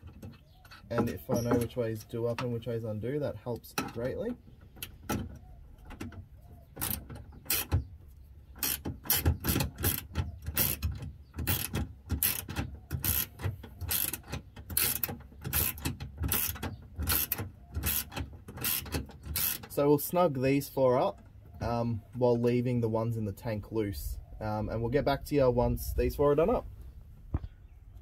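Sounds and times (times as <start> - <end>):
ratcheting spanner clicking: 8.6 - 19.8.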